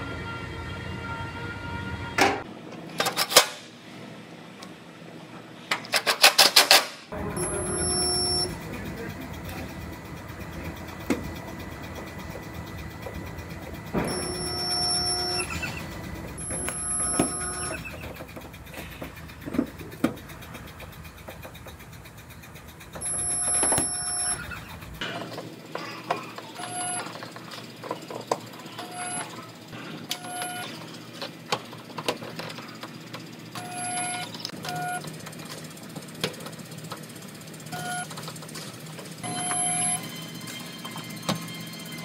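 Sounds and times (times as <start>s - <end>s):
spot welder buzzing: 7.1s - 25.0s.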